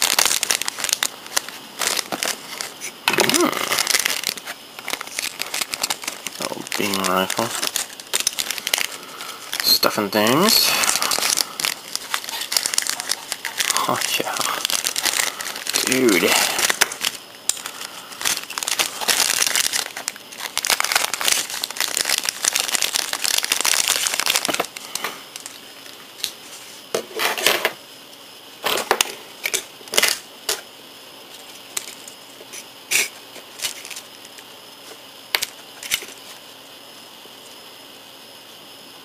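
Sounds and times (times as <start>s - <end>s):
plastic bag crinkling: 0.0s - 26.4s, 32.9s - 34.5s.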